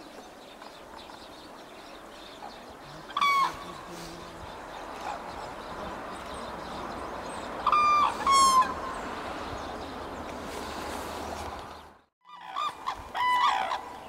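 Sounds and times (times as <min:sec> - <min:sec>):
cranes calling: 0:02.8 - 0:06.6, 0:07.4 - 0:09.0, 0:12.3 - 0:14.0.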